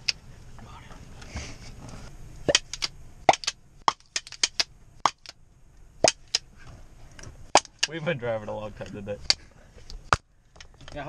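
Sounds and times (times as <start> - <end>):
sharp short clicks: 6.0 - 6.4.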